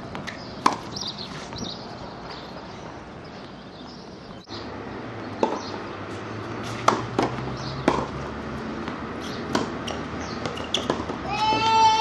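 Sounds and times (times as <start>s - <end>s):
tennis ball hit and bouncing: 0.0s - 1.8s, 5.3s - 11.8s.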